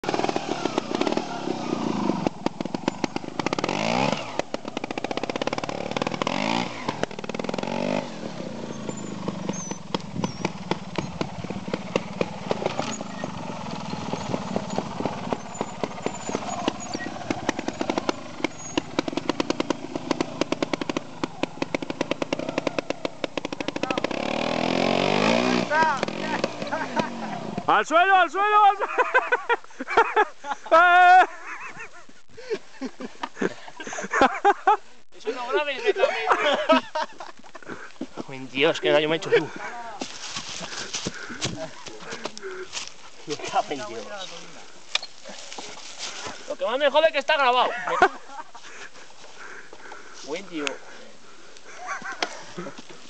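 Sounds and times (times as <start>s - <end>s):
motorcycle engine pulling at low revs: 0.0s - 27.8s, 39.1s - 47.1s.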